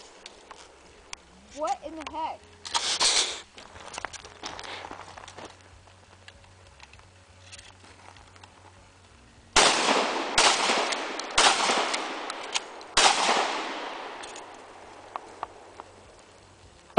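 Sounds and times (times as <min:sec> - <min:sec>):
gunshots with echo: 0:09.6 - 0:14.4.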